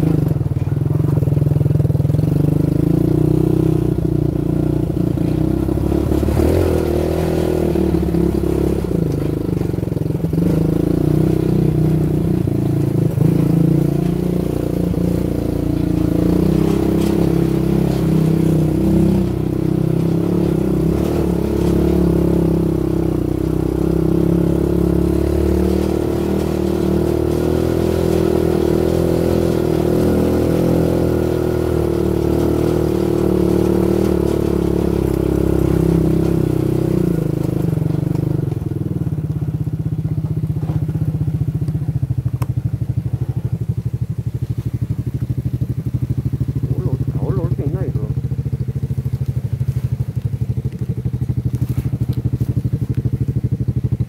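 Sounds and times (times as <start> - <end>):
quad bike engine running: 0.0 - 54.0
knocks and rattles: 4.0 - 42.0.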